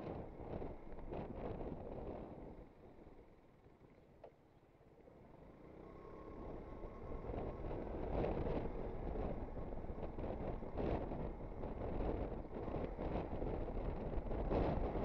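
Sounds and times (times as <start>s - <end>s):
wind rush on microphone: 0.0s - 2.7s, 6.2s - 15.0s
scooter engine: 0.1s - 15.0s.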